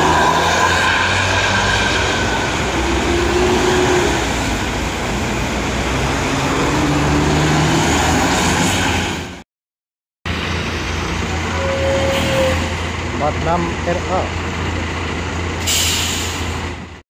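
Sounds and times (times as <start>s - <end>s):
bus diesel engines: 0.0s - 9.4s, 10.3s - 17.0s
tyres hissing on wet road: 15.6s - 16.7s.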